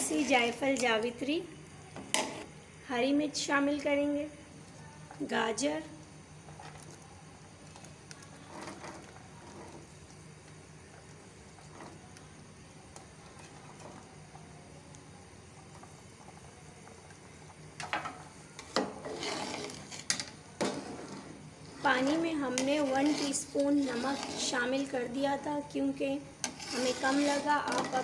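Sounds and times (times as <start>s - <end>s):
metal spoon scraping a pot: 0.0s - 0.6s, 8.4s - 9.9s, 18.6s - 25.0s, 26.4s - 28.0s
broth bubbling in a pot: 0.0s - 28.0s.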